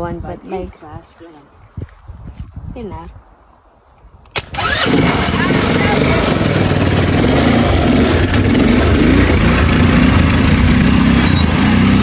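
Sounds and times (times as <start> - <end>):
quad bike engine running: 4.4 - 12.0.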